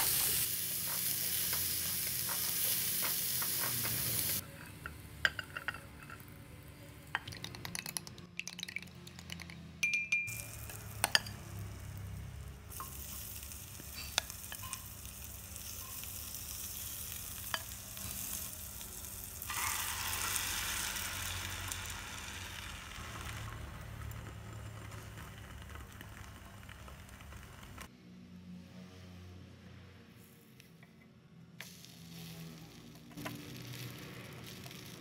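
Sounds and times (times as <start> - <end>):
bread sizzling in frying pan: 0.0 - 4.4, 10.9 - 27.9, 31.6 - 35.0.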